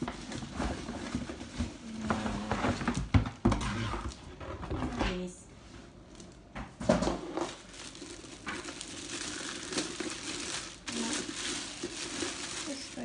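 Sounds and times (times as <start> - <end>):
plastic packaging rustling: 0.0 - 3.2, 6.1 - 13.0.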